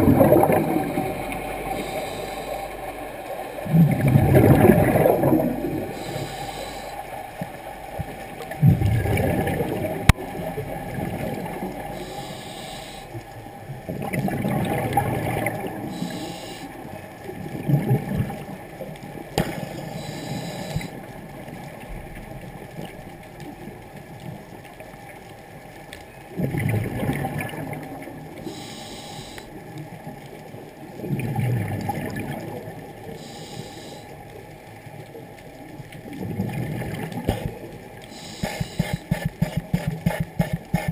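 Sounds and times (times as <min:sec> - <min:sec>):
rumbling exhaust bubbles: 0:00.0 - 0:02.9, 0:03.6 - 0:06.8
scuba regulator inhalation hiss: 0:01.7 - 0:02.8, 0:05.8 - 0:07.1, 0:12.0 - 0:13.2, 0:15.9 - 0:16.8, 0:19.8 - 0:21.0, 0:28.5 - 0:29.5, 0:33.2 - 0:34.1, 0:38.1 - 0:40.9.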